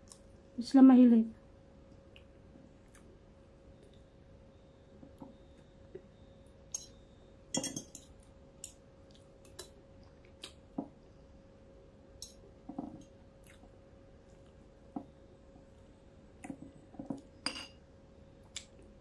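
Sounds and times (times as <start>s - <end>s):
cutlery clinking on a plate: 7.5s - 8.2s, 17.4s - 17.8s.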